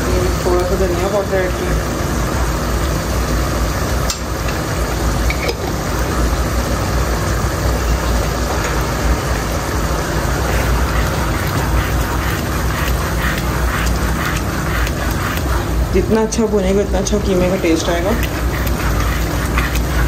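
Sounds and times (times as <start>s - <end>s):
food simmering in a pot: 0.0s - 20.0s
gas stove hum: 0.0s - 20.0s
wooden spatula scraping: 10.3s - 20.0s.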